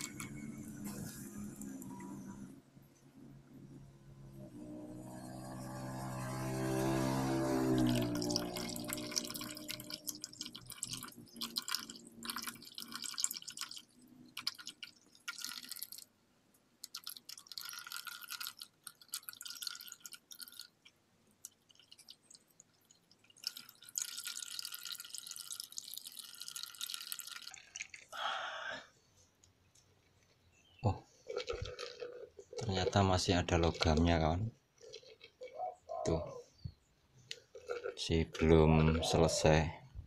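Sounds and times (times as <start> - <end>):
liquid trickling and splashing: 5.4 - 16.1, 16.8 - 28.2, 31.1 - 35.6, 37.3 - 39.2.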